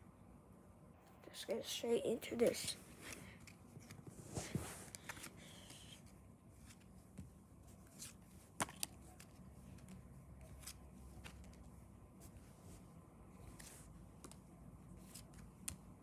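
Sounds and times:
trading cards flicking and sliding: 0:02.9 - 0:11.7, 0:13.4 - 0:16.0.

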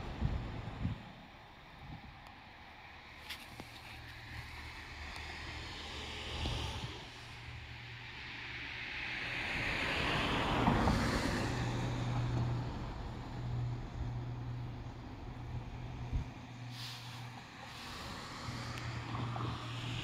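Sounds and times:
wind on microphone: 0:00.0 - 0:01.2
road vehicle passing close by: 0:00.0 - 0:20.0.

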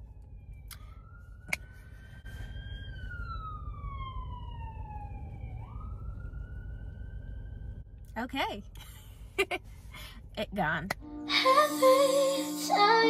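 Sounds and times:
ambulance siren wailing: 0:00.0 - 0:07.8
sharp siren chirp: 0:00.0 - 0:07.8.

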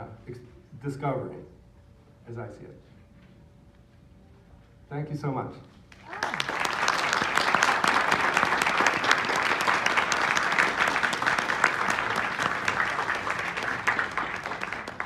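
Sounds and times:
audience applauding: 0:05.9 - 0:15.0.

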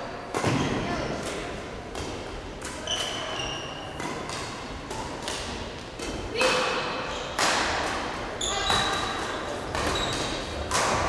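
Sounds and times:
rackets hitting shuttlecock: 0:00.3 - 0:11.0
shoes squeaking on court: 0:02.8 - 0:05.1, 0:08.4 - 0:10.6.

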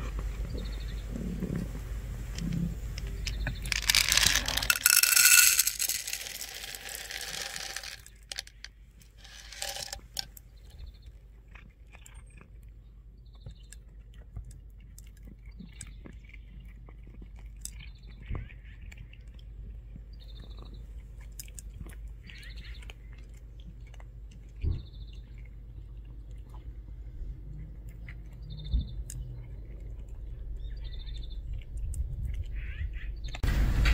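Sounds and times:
cat crunching kibble: 0:01.1 - 0:32.6
kibble pouring into bowl: 0:03.6 - 0:10.4.

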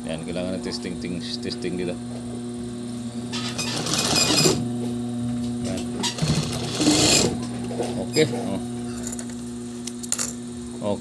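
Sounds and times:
steady machine hum: 0:00.0 - 0:11.0
sewing machine stitching: 0:03.4 - 0:04.6, 0:06.1 - 0:07.4.

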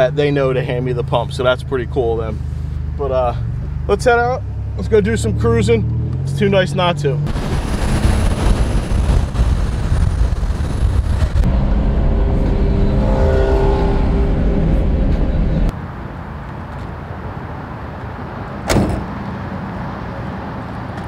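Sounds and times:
car engine at highway speed: 0:00.0 - 0:21.0
outdoor background noise: 0:00.0 - 0:21.0
road and wind noise: 0:00.0 - 0:21.0
car door slamming: 0:18.6 - 0:19.3.

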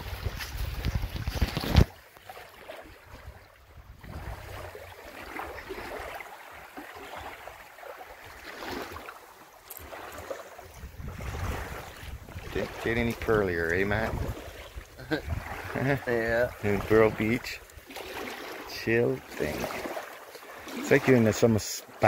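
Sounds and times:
wind rumbling on microphone: 0:00.0 - 0:02.0, 0:03.0 - 0:04.9, 0:10.6 - 0:17.9
water noise: 0:00.0 - 0:22.0.

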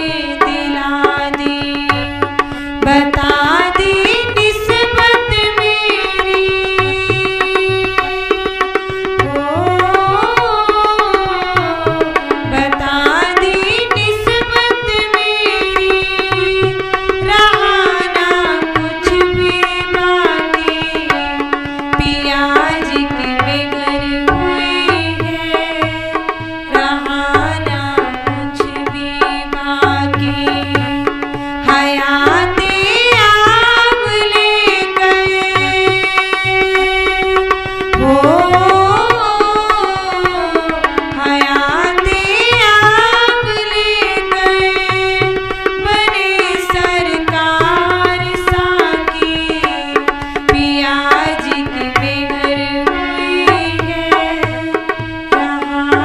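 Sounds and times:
tabla rhythm: 0:00.0 - 0:56.0.

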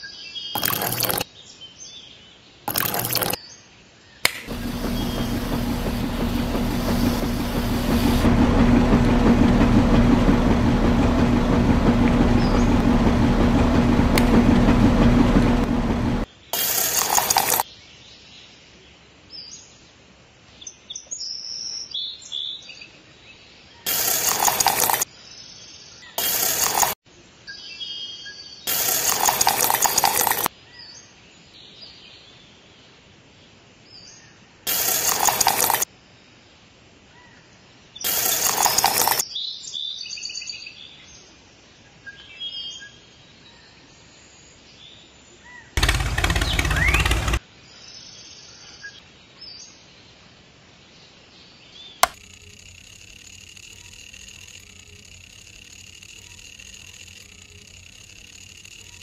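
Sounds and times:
switch click: 0:04.2 - 0:04.5
bench grinder motor whining: 0:04.4 - 0:17.6, 0:45.8 - 0:47.4, 0:52.0 - 0:59.0.

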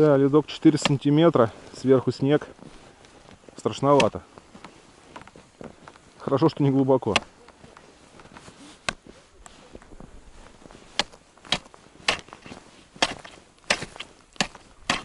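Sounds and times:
ice chisel striking ice: 0:11.0 - 0:15.0.

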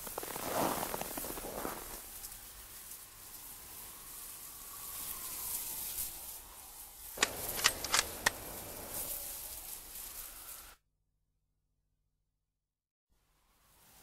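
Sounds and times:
steady hiss: 0:00.0 - 0:10.8
rifle bolt clicks: 0:07.2 - 0:08.4
rifle shot: 0:07.2 - 0:08.5.

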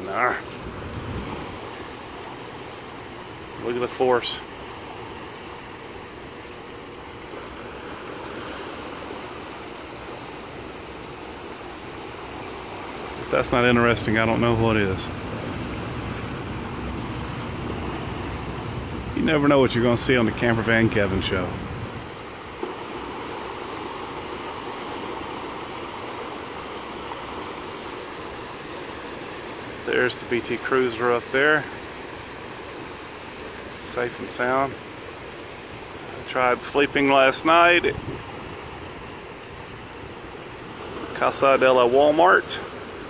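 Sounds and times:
river water rushing and churning: 0:00.0 - 0:43.0.

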